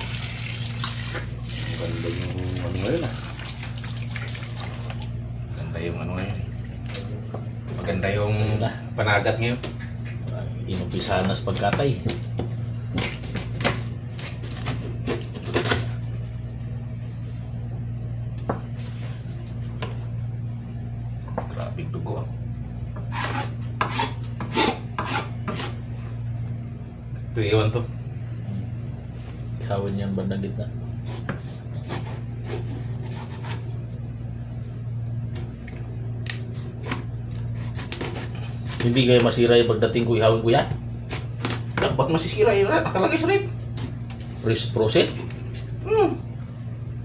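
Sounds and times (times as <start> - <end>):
steady low hum: 0.0 - 47.0
knife cutting fish: 31.0 - 33.7, 36.9 - 38.9.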